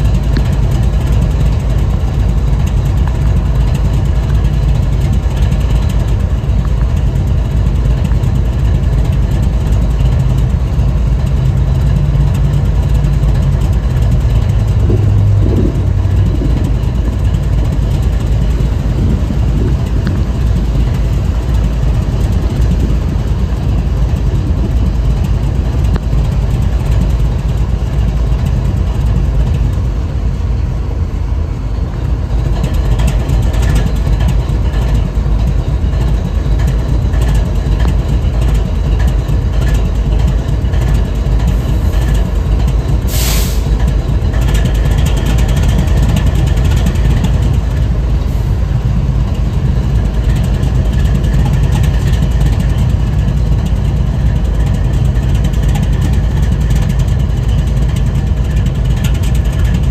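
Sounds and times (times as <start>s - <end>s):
diesel locomotive idling: 0.0s - 59.9s
short sharp hiss: 43.1s - 43.7s.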